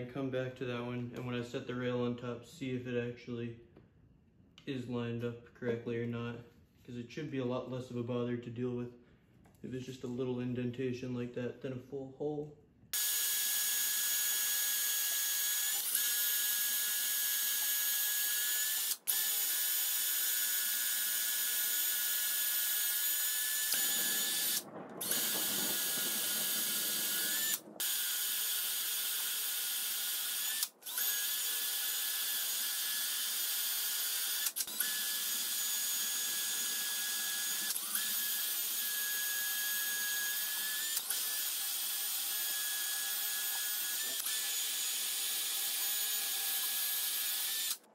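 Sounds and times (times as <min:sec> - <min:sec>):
electric drill drilling steel: 0:13.0 - 0:47.9.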